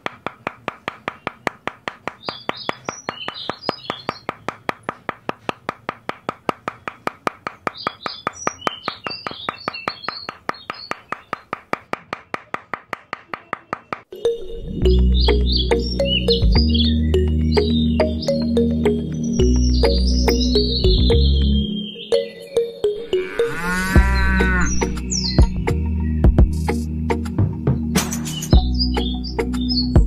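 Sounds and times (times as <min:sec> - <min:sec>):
small hammer tapping wooden posts: 0:00.0 - 0:14.1.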